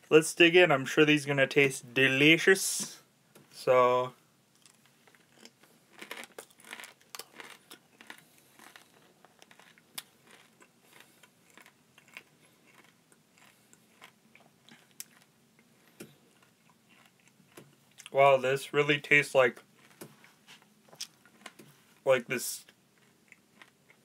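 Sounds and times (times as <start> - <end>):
crunching and chewing: 4.6 - 18.2, 19.5 - 22.0, 22.6 - 24.0.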